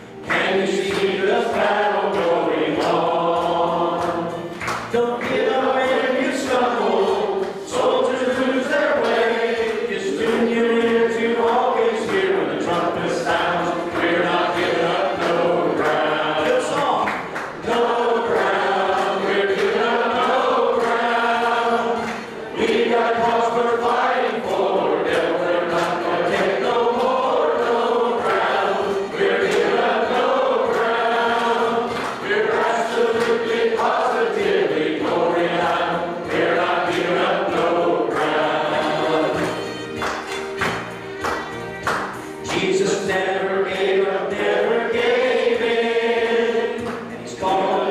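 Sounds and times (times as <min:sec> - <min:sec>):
congregation singing: 0:00.0 - 0:47.9
man singing into a microphone: 0:00.3 - 0:09.1, 0:42.5 - 0:45.1.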